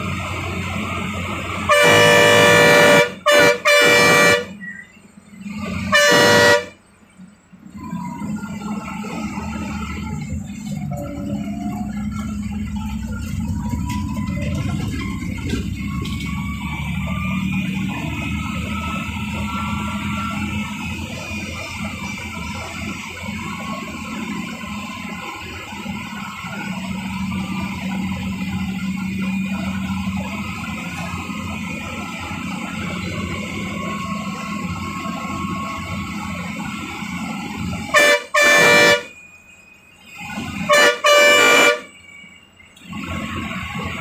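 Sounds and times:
engine and road rumble: 0:00.0 - 0:44.0
bus horn blasts: 0:01.1 - 0:07.0, 0:25.8 - 0:39.3, 0:40.2 - 0:42.1.

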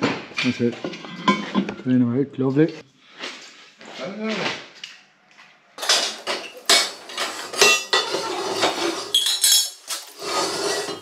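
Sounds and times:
metal scraping: 0:00.4 - 0:02.1, 0:05.8 - 0:11.0
steel pieces clinking: 0:09.1 - 0:10.2.

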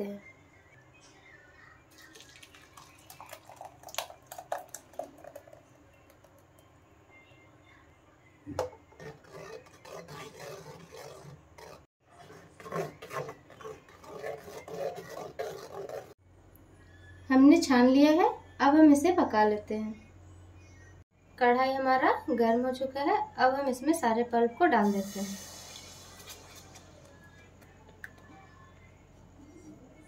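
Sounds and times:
puree scraped through a sieve: 0:08.9 - 0:16.2.

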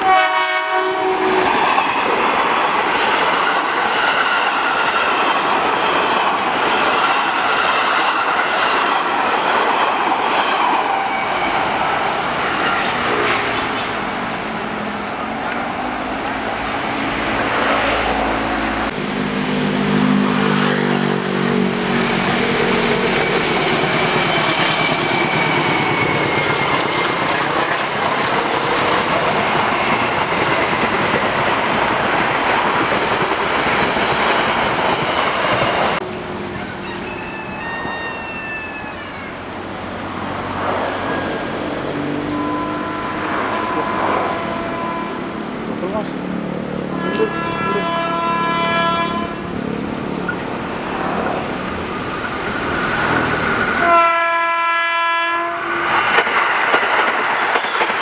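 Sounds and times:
train horn sliding down: 0:00.0 - 0:01.6, 0:41.0 - 0:45.3, 0:46.9 - 0:49.5, 0:53.8 - 0:56.0
diesel locomotive approaching: 0:00.0 - 0:58.0
passenger train rushing past: 0:00.0 - 0:58.0.

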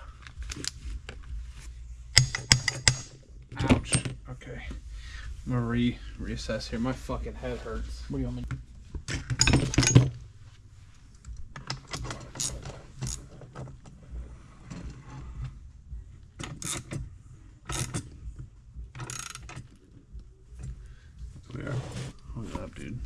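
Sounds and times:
metal clicking and scraping: 0:02.1 - 0:04.2, 0:11.1 - 0:14.0, 0:16.4 - 0:20.0.

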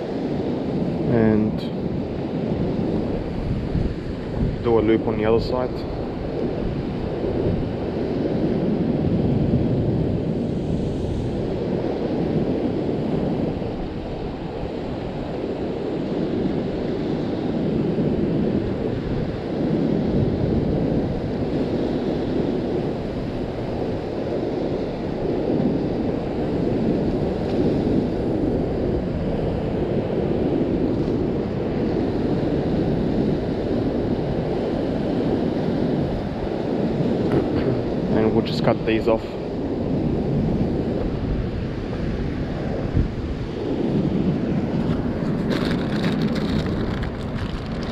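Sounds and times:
wind buffeting microphone: 0:00.0 - 0:47.9
surf washing against rocks: 0:41.0 - 0:47.9.

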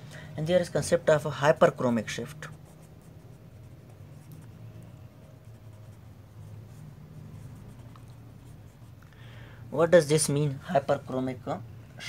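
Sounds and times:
steady low hum: 0:00.0 - 0:12.0
felt-tip marker scratching paper: 0:02.1 - 0:09.0.

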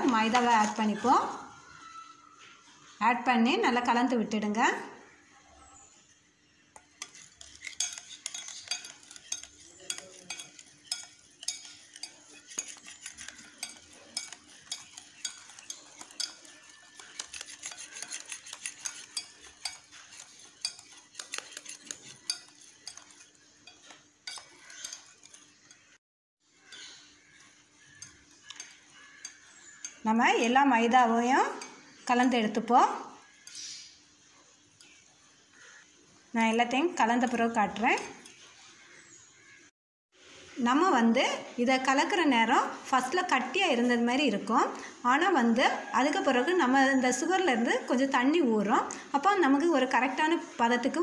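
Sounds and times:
whisk scraping metal bowl: 0:00.0 - 0:01.4, 0:06.8 - 0:26.0, 0:26.7 - 0:30.1.

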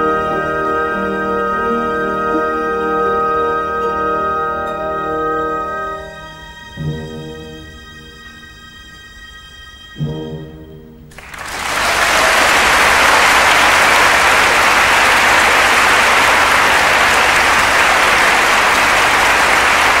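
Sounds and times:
audience applauding: 0:11.1 - 0:20.0.

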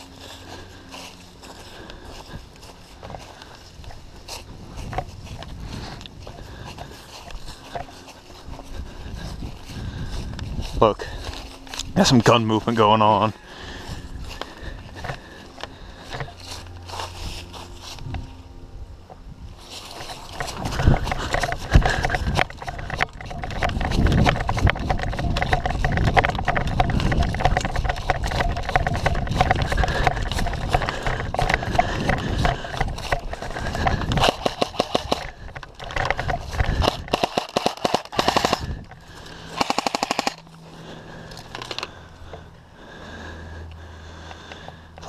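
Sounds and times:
automatic gunfire: 0:36.9 - 0:38.7, 0:39.5 - 0:40.4.

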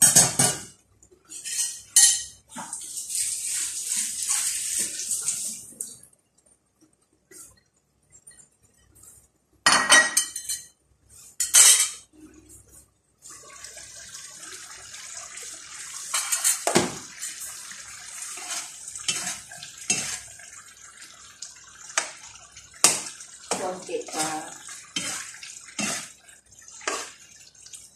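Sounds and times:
broth simmering and bubbling: 0:00.7 - 0:09.6, 0:12.0 - 0:27.9
spoon scraping and knocking pan: 0:18.2 - 0:20.4, 0:21.9 - 0:26.2, 0:26.8 - 0:27.3.

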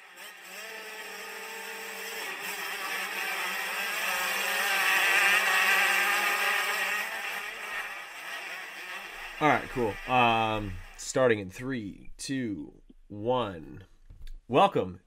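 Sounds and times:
engine running and revving: 0:00.0 - 0:11.0.

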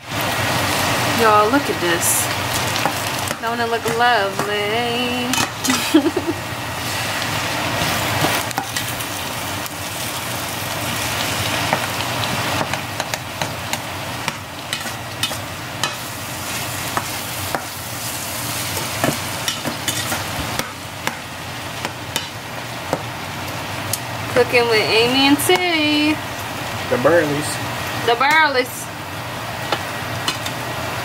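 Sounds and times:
meat sizzling in a skillet: 0:00.0 - 0:31.0.

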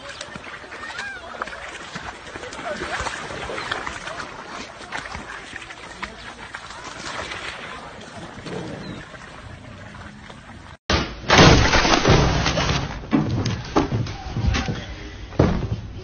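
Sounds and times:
outdoor noise: 0:00.0 - 0:16.0.

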